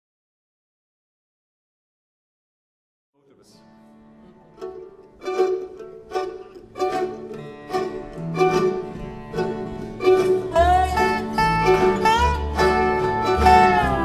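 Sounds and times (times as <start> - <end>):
picked string notes: 3.2 - 14.0
sliding high melody notes: 4.5 - 14.0
upright bass notes: 6.2 - 14.0.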